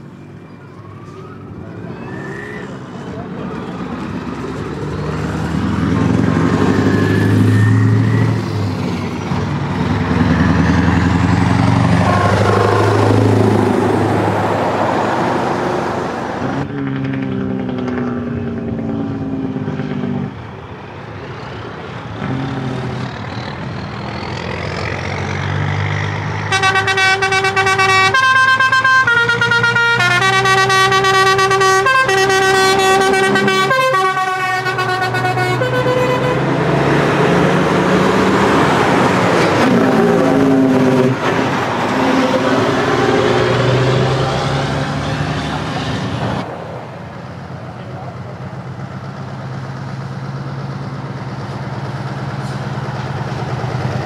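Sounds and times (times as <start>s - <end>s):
diesel trucks driving past: 0.0s - 54.0s
truck air horn blasts: 22.2s - 23.1s, 26.5s - 36.6s.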